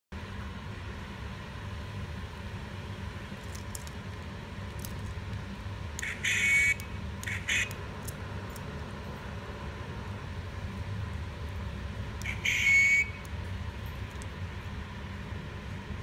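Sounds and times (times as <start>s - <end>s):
steady low hum: 0.1s - 16.0s
faint handling clicks: 3.4s - 6.1s
buzzy electronic toy sound effects: 6.0s - 7.7s, 12.2s - 13.3s.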